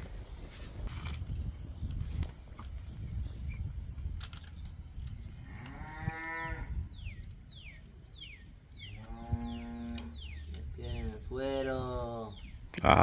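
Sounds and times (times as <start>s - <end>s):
cow mooing: 5.5s - 6.8s, 9.0s - 10.2s.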